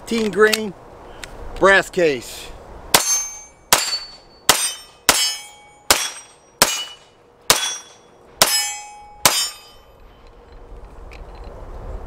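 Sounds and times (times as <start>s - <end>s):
pistol shots with metallic ring: 2.9s - 9.9s.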